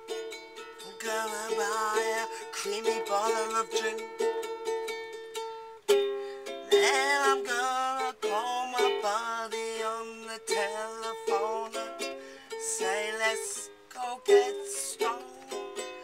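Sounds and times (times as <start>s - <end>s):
ukulele strumming: 0.0s - 16.0s
woman singing: 0.8s - 4.0s, 6.7s - 16.0s.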